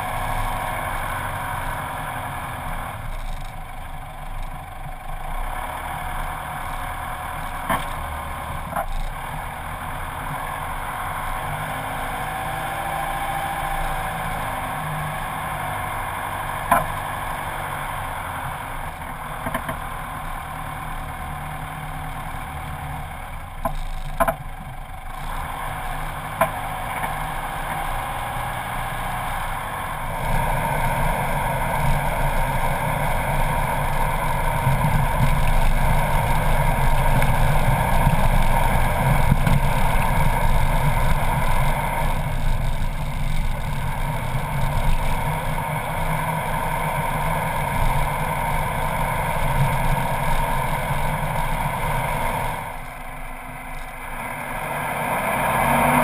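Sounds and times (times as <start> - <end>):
tyres on dirt track: 0.0 - 56.0
vehicle engine: 0.0 - 56.0.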